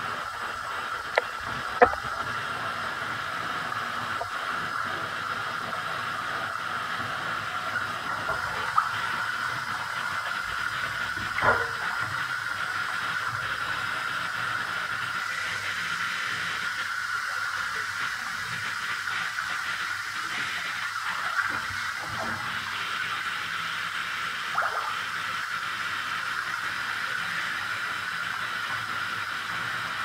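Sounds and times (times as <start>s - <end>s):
water running into bathtub: 0.0s - 30.0s.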